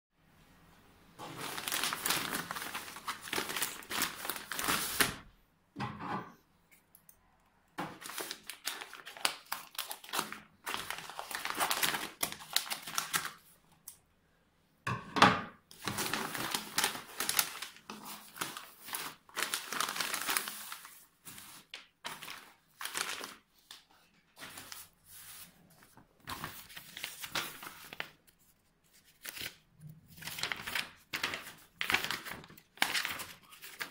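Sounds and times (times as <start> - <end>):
plastic bag crinkling: 1.2 - 5.2, 8.0 - 13.4, 15.7 - 23.5, 30.2 - 33.9.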